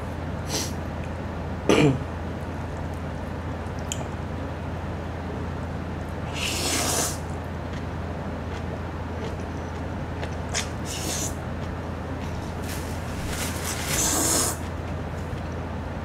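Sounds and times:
noodles slurped: 13.9 - 14.6.

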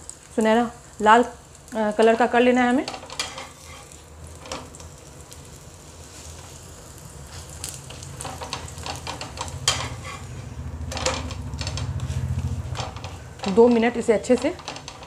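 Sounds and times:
flatbread sizzling in ghee: 0.0 - 15.0
metal spatula scraping and tapping: 2.9 - 4.8, 7.9 - 15.0.

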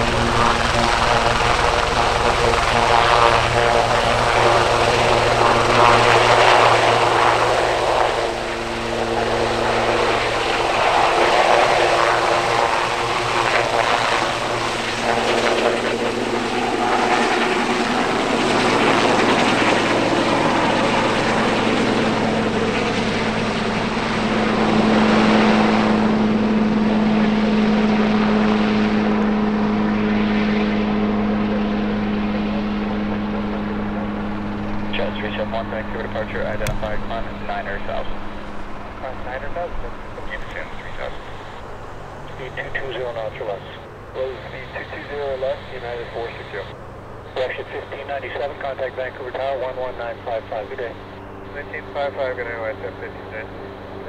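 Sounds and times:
helicopter rotor and engine: 0.0 - 54.0.

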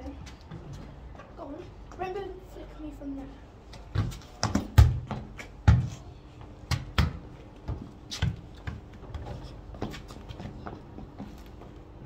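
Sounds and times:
football being kicked: 3.9 - 5.9
footsteps scuffing on hard ground: 7.7 - 11.8.

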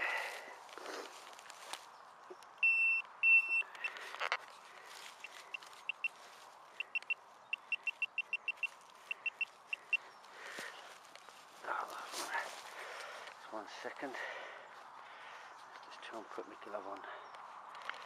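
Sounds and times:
metal detector probe beeping: 2.6 - 4.4, 5.1 - 6.2, 6.8 - 10.1.

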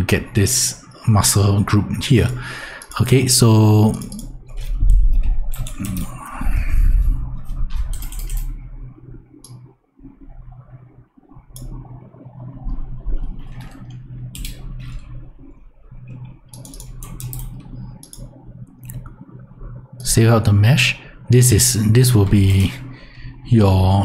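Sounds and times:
low electrical hum: 0.0 - 24.0
keyboard keys clicking: 3.9 - 6.1, 7.5 - 8.6, 13.3 - 15.1, 16.5 - 19.1.

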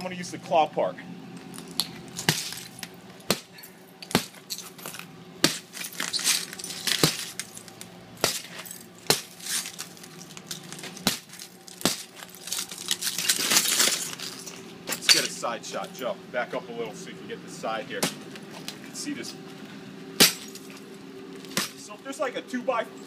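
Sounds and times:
cracked glass crunching: 1.4 - 15.3, 20.2 - 21.8
hammer striking glass: 20.2 - 20.6.

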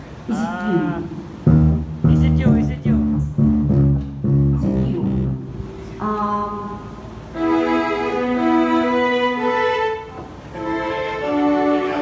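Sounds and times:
plucked bass and guitar notes: 1.4 - 6.0
long held melody notes: 1.4 - 12.0.

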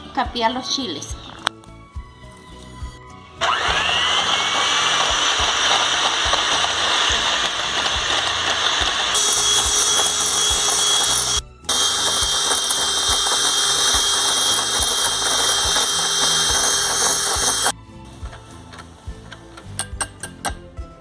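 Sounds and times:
electric hand mixer whining: 3.4 - 17.8.

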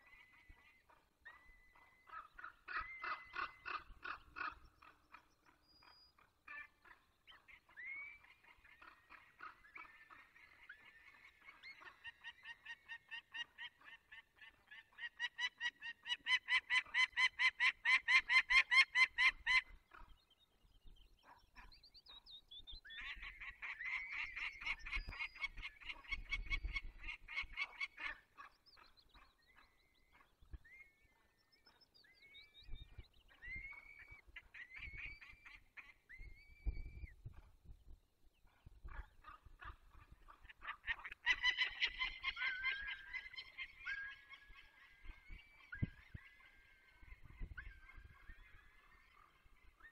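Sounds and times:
falcons calling harshly: 40.4 - 44.8.

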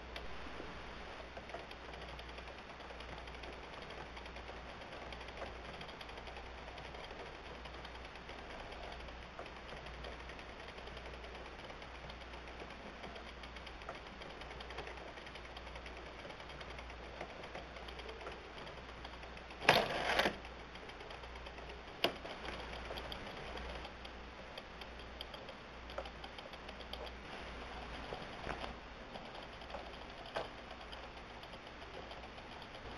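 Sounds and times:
wooden gears rattling: 1.4 - 27.2, 27.8 - 32.9.

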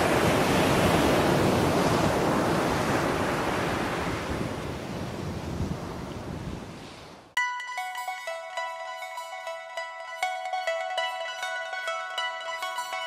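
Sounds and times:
ocean waves surf: 0.0 - 13.0.

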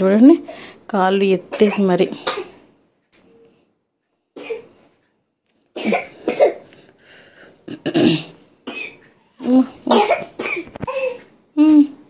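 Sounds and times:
person coughing: 5.8 - 6.6, 7.7 - 9.0, 9.8 - 11.2.

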